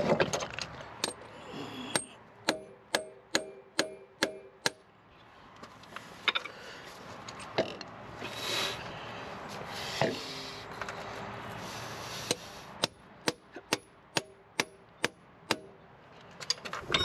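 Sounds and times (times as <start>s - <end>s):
ringing metal-on-metal taps: 1.9s - 4.8s, 16.4s - 17.0s
metal parts clattering: 16.3s - 17.0s.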